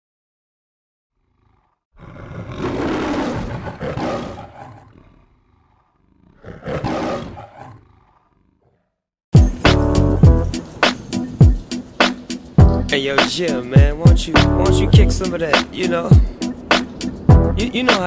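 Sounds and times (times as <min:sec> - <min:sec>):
lion roaring: 0:01.2 - 0:09.0
music with heavy bass beat: 0:09.4 - 0:18.0.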